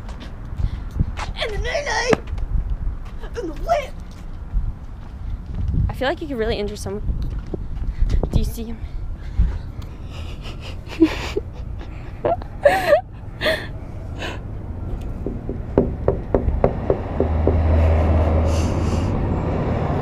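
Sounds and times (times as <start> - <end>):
low steady rumble: 4.0 - 19.4
person gasping and giggling: 9.4 - 14.4, 17.6 - 19.2.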